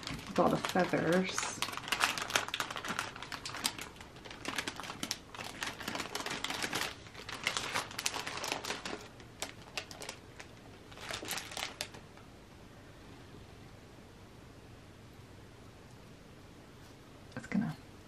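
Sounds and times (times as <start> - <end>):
plastic bag crinkling: 0.0 - 12.2.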